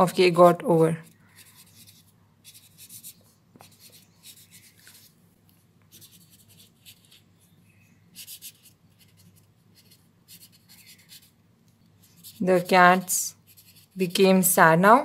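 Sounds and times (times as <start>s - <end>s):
pen scratching on paper: 0.9s - 5.1s, 5.9s - 7.3s, 8.1s - 11.4s, 12.0s - 14.2s.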